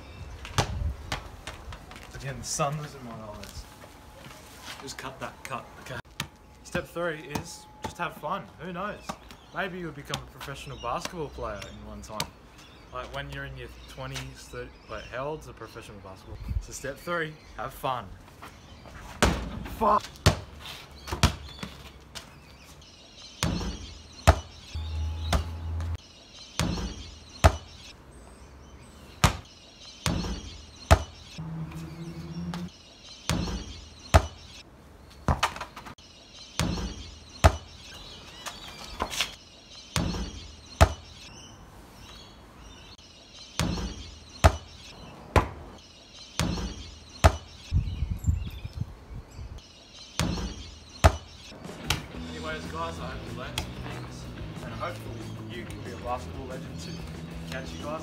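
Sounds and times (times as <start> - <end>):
ball thudding on brick paving: 0.4 - 2.0, 7.2 - 8.0, 19.0 - 22.2, 23.4 - 24.6, 26.6 - 27.7, 29.2 - 31.2, 33.3 - 34.4, 35.2 - 36.0, 36.6 - 37.7, 40.0 - 41.1, 43.6 - 44.7, 45.3 - 45.7, 46.4 - 47.5, 50.2 - 52.1.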